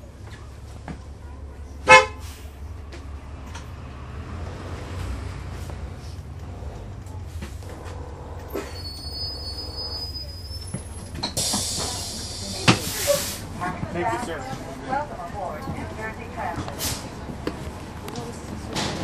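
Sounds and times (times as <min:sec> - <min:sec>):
bus diesel engine rumble: 0:00.0 - 0:19.0
brake squeal: 0:07.4 - 0:13.5
air release hiss: 0:11.2 - 0:13.5.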